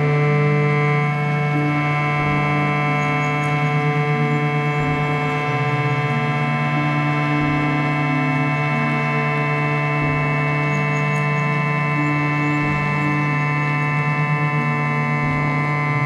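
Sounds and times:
ambient drone music: 0:00.0 - 0:16.0.

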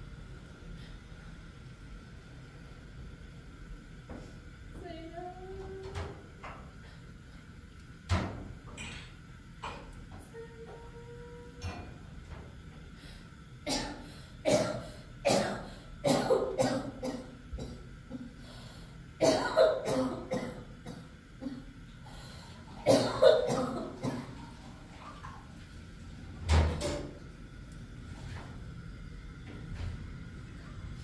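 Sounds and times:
person coughing: 0:13.7 - 0:17.8, 0:19.2 - 0:21.6, 0:22.8 - 0:24.4.

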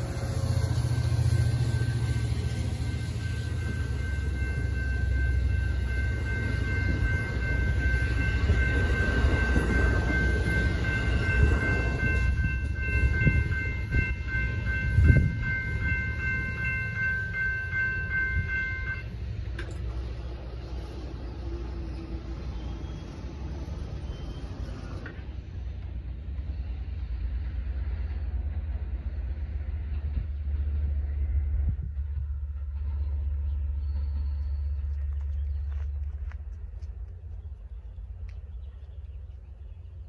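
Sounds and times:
railroad crossing bells ringing: 0:00.0 - 0:34.9
train cars rumbling on rails: 0:00.0 - 0:40.0.

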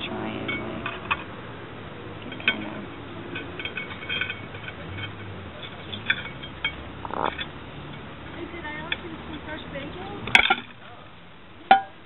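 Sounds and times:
ceramic plates clinking: 0:02.2 - 0:08.1
plate scraping: 0:03.4 - 0:07.5.

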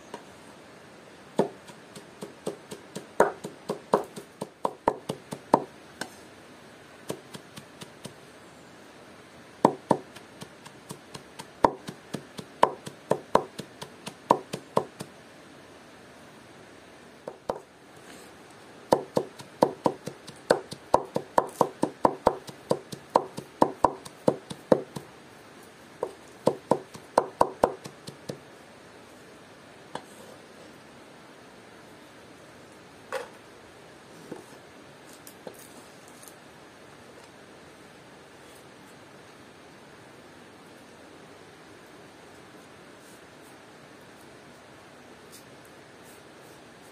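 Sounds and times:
knife chopping on cutting board: 0:02.2 - 0:05.7, 0:18.9 - 0:24.9.

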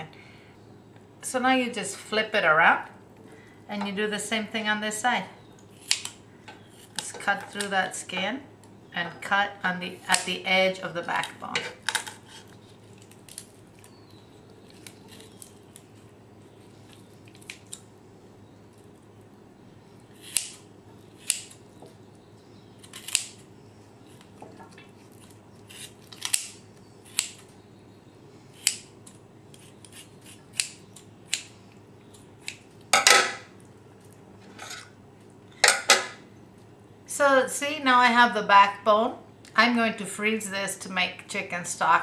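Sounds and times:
kitchen shears snipping: 0:05.7 - 0:08.2, 0:10.0 - 0:13.5, 0:20.1 - 0:21.6, 0:22.8 - 0:23.4, 0:25.0 - 0:27.5, 0:28.6 - 0:33.4.

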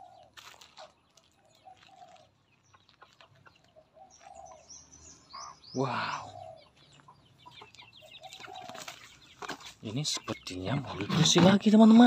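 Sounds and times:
footsteps on gravel: 0:00.0 - 0:04.5, 0:06.7 - 0:09.9
chickens clucking: 0:00.0 - 0:12.0
small birds chirping: 0:00.0 - 0:12.0.

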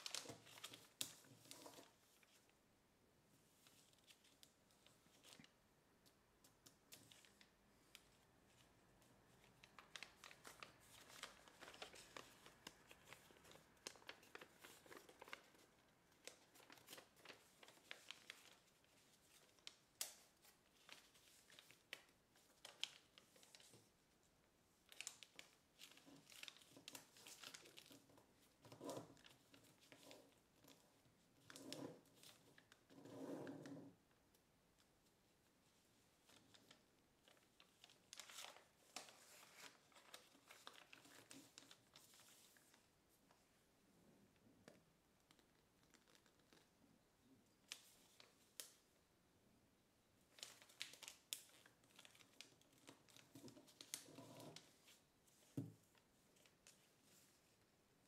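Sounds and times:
paper crinkling and rustling: 0:00.0 - 0:02.6, 0:06.4 - 0:24.0, 0:24.8 - 0:33.7, 0:36.1 - 0:43.4, 0:45.2 - 0:46.8, 0:50.3 - 0:57.7.

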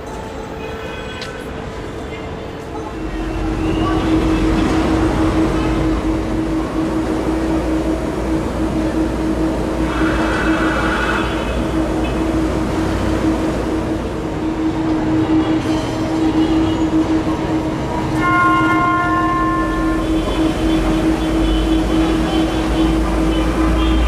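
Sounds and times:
tram hum and rumble: 0:00.0 - 0:24.0
multi-pitch horn: 0:09.8 - 0:11.8, 0:18.2 - 0:24.0.

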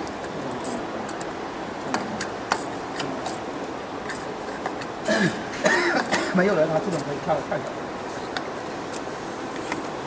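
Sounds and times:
person speaking: 0:00.0 - 0:03.7.

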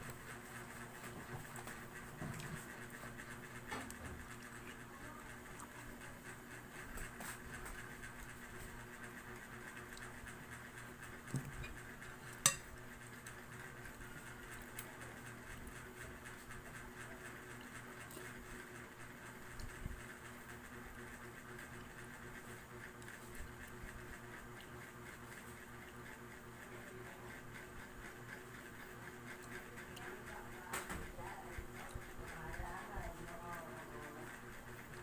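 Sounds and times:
steady background hum: 0:00.0 - 0:35.0
tableware clink: 0:12.5 - 0:12.7.

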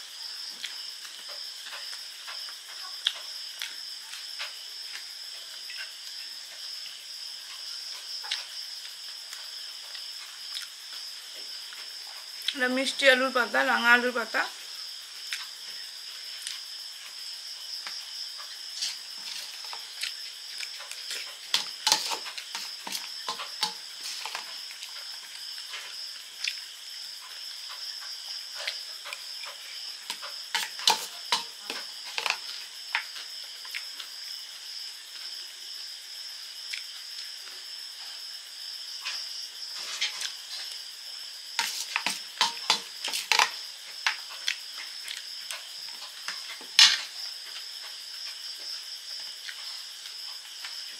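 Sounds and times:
crunchy food being chewed: 0:00.4 - 0:12.6, 0:15.2 - 0:34.2, 0:36.6 - 0:37.7, 0:39.0 - 0:50.9
spoon scraping steel bowl: 0:18.8 - 0:19.9, 0:21.5 - 0:24.6, 0:30.1 - 0:32.5, 0:41.6 - 0:43.6.

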